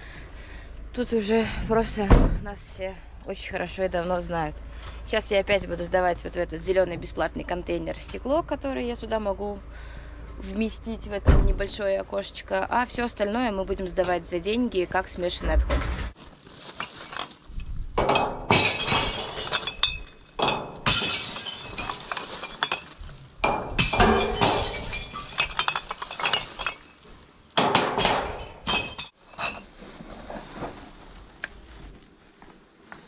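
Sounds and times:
glass smashing in a bin: 0:16.7 - 0:17.4, 0:18.0 - 0:27.0, 0:27.6 - 0:29.6.

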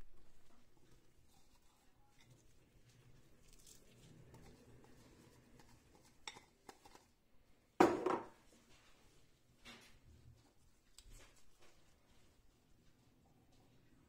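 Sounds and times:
bowl clunk on wooden board: 0:07.8 - 0:08.3.

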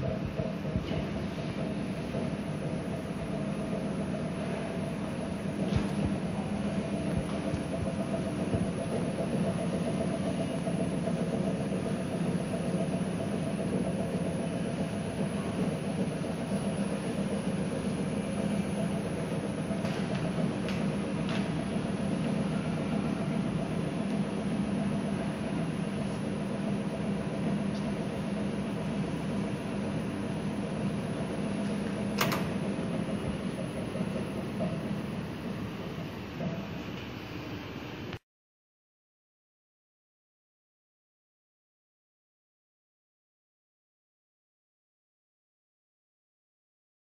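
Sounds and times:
balancing machine spinning shaft: 0:00.0 - 0:37.0.

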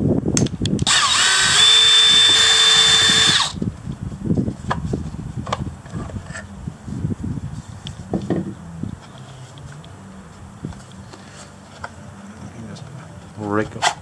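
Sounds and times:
cordless drill running: 0:00.8 - 0:03.6.

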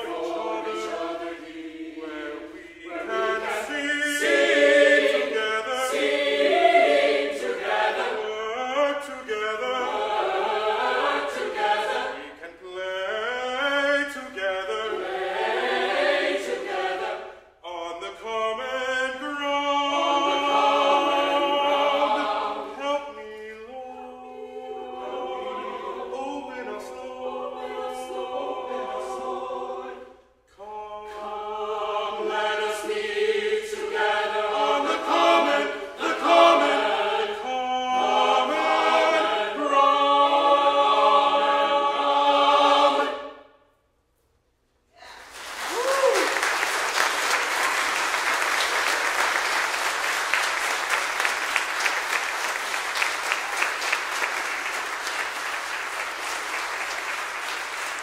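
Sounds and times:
mixed choir singing: 0:00.0 - 0:43.6, 0:46.6 - 0:58.0
baritone soloist singing: 0:08.1 - 0:10.5, 0:12.3 - 0:15.3, 0:17.6 - 0:25.4, 0:30.5 - 0:33.0.

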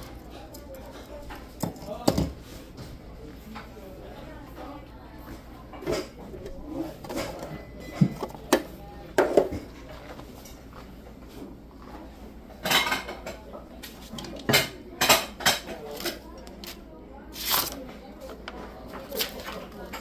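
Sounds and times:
metal utensils and pots clanking: 0:05.7 - 0:10.6, 0:12.6 - 0:13.4.

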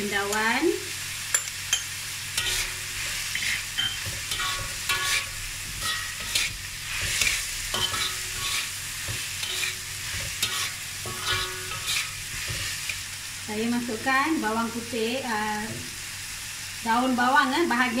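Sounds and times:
vegetables sizzling in oil: 0:00.0 - 0:18.0
metal spatula scraping wok: 0:01.3 - 0:13.1.

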